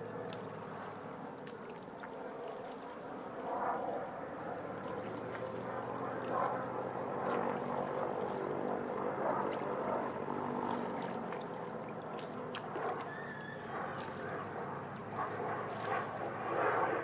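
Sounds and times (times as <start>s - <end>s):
engine humming steadily: 0.0s - 1.2s.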